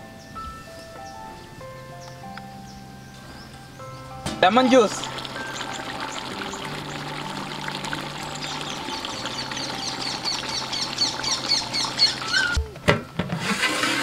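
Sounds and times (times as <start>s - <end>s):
bird chirping: 0.0s - 12.6s
liquid trickling into a pot: 4.4s - 12.4s.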